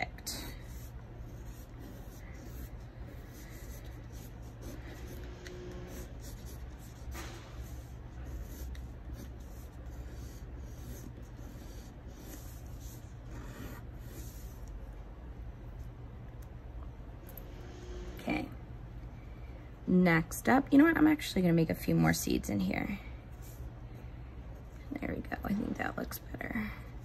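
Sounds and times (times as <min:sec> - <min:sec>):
steady low hum: 0:00.0 - 0:27.0
pencil scratching on paper: 0:00.1 - 0:14.7.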